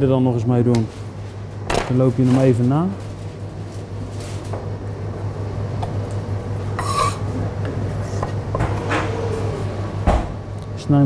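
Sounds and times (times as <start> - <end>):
steady low hum: 0.0 - 11.0
knife scraping on cutting board: 6.8 - 7.2.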